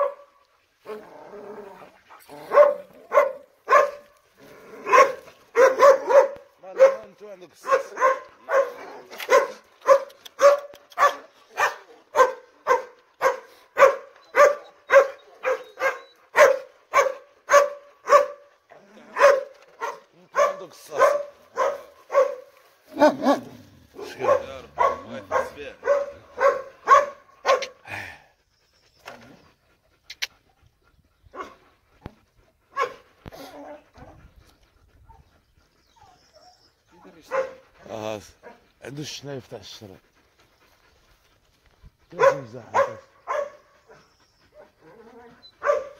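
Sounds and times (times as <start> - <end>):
dog barking: 0.0 - 0.3, 2.4 - 4.1, 4.8 - 18.5, 19.1 - 27.8, 31.3 - 31.6, 32.7 - 33.0, 37.2 - 37.6, 42.1 - 43.7, 45.6 - 45.9.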